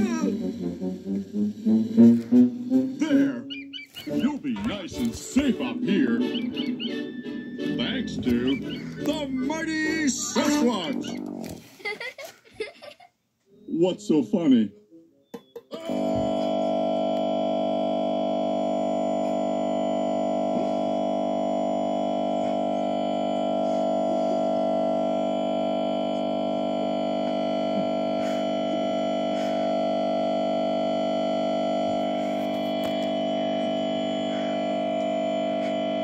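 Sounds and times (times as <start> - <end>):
steady buzzing drone: 0.0 - 3.4, 15.8 - 36.0.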